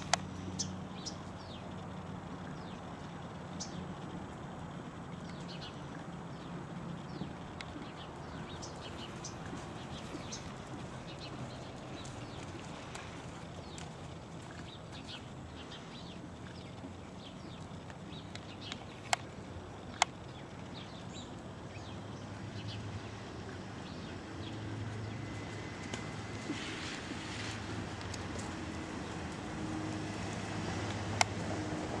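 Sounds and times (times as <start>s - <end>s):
sharp clicks: 0.0s - 0.4s
small birds chirping: 0.0s - 29.5s
steady low rumble: 0.0s - 32.0s.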